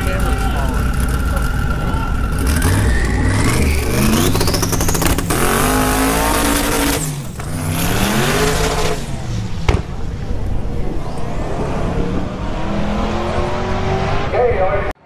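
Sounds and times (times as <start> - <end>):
engine crackle: 0.0 - 11.5
drag car engine at full throttle: 0.0 - 14.9.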